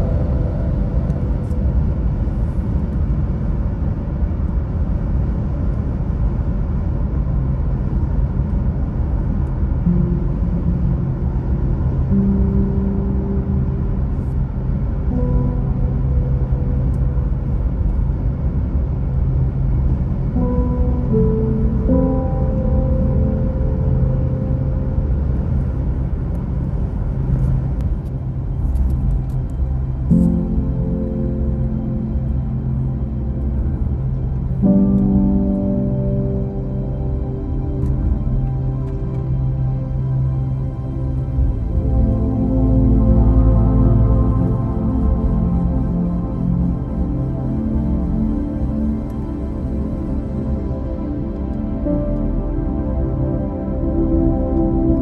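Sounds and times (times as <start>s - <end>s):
faint sustained tones: 0.0s - 3.9s, 7.3s - 55.0s
road and tyre rumble: 0.0s - 55.0s.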